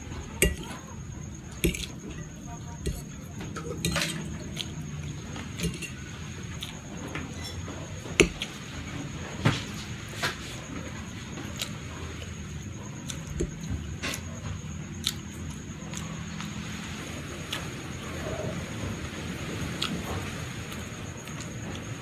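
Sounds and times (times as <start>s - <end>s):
fork clinking on ceramic plate: 0.4s - 0.8s, 1.6s - 4.7s, 5.6s - 6.0s.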